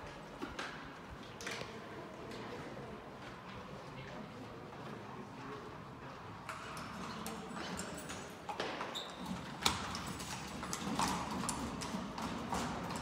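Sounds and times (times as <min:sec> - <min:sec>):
horse hooves clip-clopping on stone: 0:06.5 - 0:13.0.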